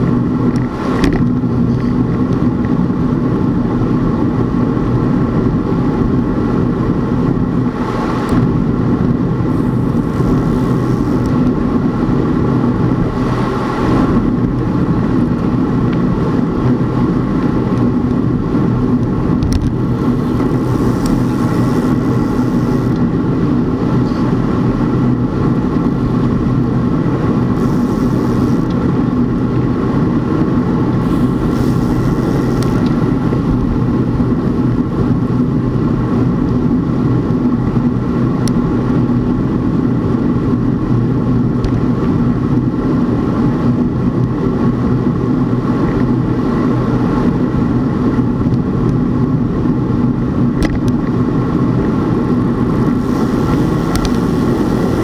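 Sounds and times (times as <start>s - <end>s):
road and wind noise: 0.0s - 55.0s
vehicle engine humming: 0.0s - 55.0s
hissy gusts: 9.4s - 11.7s, 19.7s - 24.7s, 27.2s - 28.9s, 30.9s - 33.9s, 52.6s - 55.0s.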